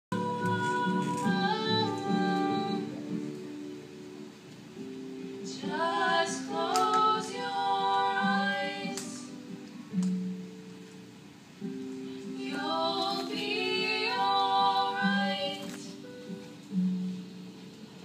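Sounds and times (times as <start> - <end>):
women singing in harmony: 0.1 - 3.2, 5.5 - 9.6, 12.2 - 16.2.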